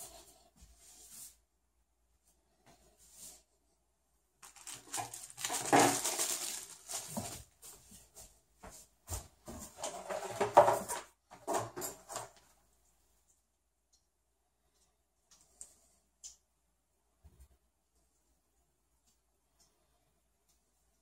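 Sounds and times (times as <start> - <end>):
plastic bag crinkling: 4.4 - 7.6.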